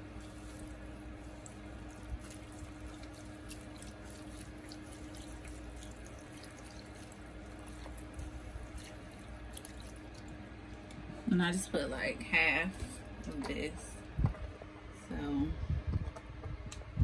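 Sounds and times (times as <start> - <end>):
liquid pouring into a pot: 0.0 - 10.8.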